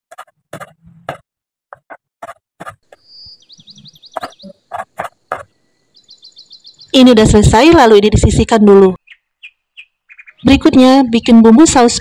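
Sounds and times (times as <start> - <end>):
bird chirping: 2.6 - 7.8, 9.0 - 12.0.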